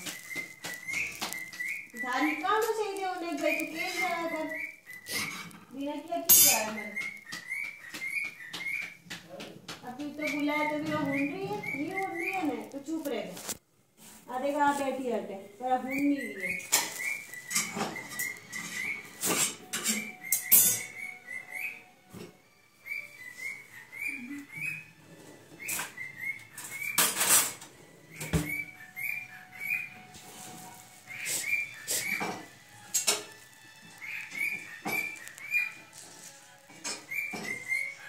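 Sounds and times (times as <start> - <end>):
cockatiel whistling chirped notes: 0.0 - 5.5, 6.1 - 9.0, 10.1 - 12.8, 15.8 - 38.0
loud scratchy rustles: 11.3 - 15.0, 30.1 - 32.2.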